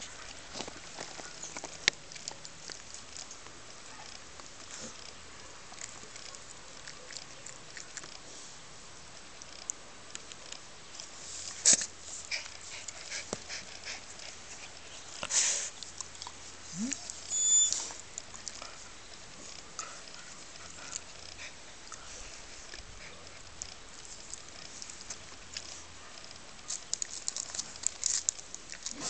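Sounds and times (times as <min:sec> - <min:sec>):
puppy scuffs and clicks on concrete: 0:00.0 - 0:03.6, 0:23.4 - 0:29.0.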